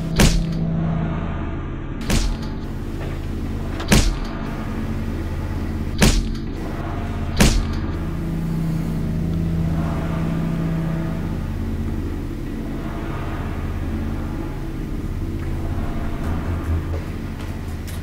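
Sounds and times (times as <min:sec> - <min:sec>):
sharp bangs: 0:00.0 - 0:00.8, 0:02.0 - 0:04.7, 0:05.9 - 0:08.1
higher hum tone: 0:00.0 - 0:18.0
low droning hum: 0:00.0 - 0:18.0.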